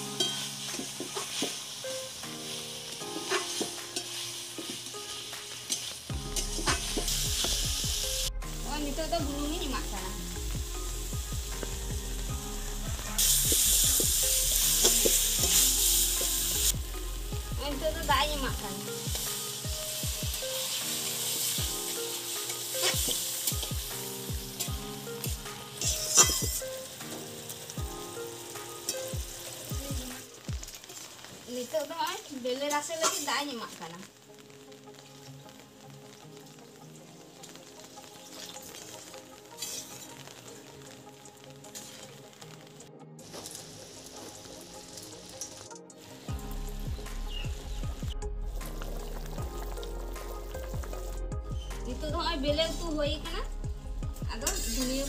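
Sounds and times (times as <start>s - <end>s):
potatoes sizzling in hot oil: 0.0s - 55.0s
spatula scraping a wok: 3.2s - 7.6s, 25.8s - 26.6s, 33.0s - 33.3s, 39.6s - 40.1s, 54.4s - 55.0s.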